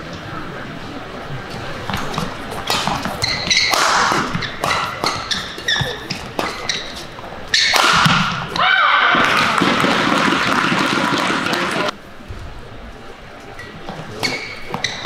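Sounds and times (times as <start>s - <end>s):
shoes squeaking on court: 1.4s - 8.6s, 13.8s - 15.0s
racquet striking shuttlecock: 1.9s - 11.9s
crowd shouting and cheering: 8.5s - 11.9s.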